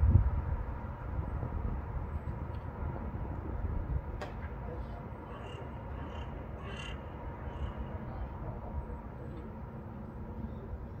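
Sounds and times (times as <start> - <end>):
wind on microphone: 0.0 - 4.2
distant city traffic: 0.0 - 11.0
crow cawing: 5.3 - 7.8.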